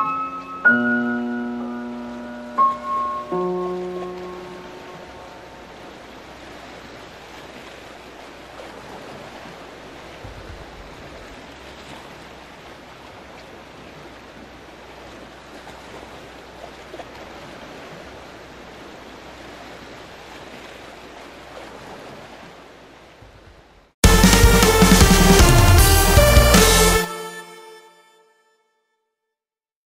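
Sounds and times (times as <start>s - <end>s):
sea waves washing: 1.2s - 23.0s.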